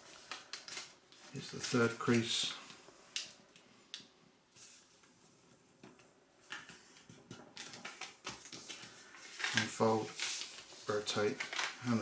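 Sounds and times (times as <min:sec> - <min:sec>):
paper being folded and creased: 0:00.0 - 0:02.4, 0:06.5 - 0:12.0.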